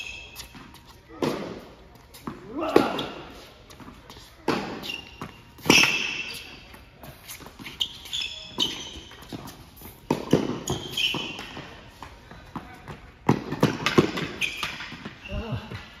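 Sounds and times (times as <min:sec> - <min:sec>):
sneakers squeaking on court: 0:00.0 - 0:16.0
tennis ball bouncing: 0:03.7 - 0:07.8, 0:08.6 - 0:15.2.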